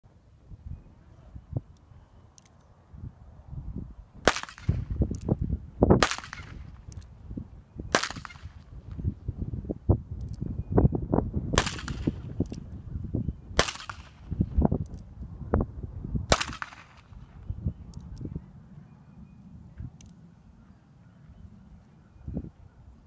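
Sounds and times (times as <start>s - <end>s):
pistol shots with echo: 4.2s - 4.8s, 6.0s - 6.7s, 7.9s - 8.6s, 11.5s - 12.3s, 13.6s - 14.3s, 16.3s - 17.1s.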